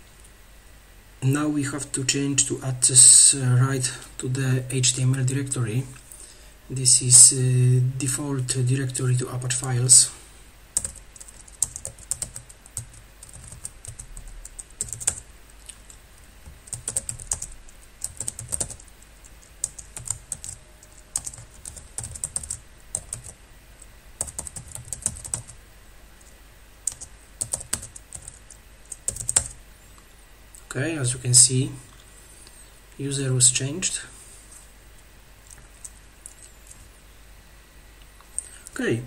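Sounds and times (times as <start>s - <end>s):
computer keyboard typing: 10.8s - 15.2s, 15.9s - 23.4s, 24.2s - 25.6s, 26.8s - 29.6s.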